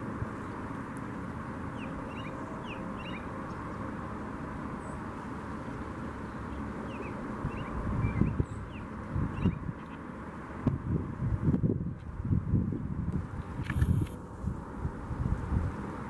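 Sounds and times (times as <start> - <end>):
bird singing whistled phrases: 1.8 - 3.2, 6.9 - 9.6.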